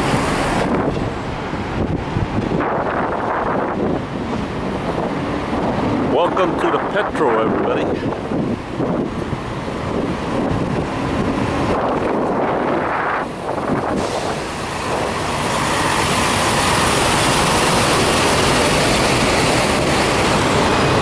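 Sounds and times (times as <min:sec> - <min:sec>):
truck diesel engine passing: 0:07.9 - 0:21.0.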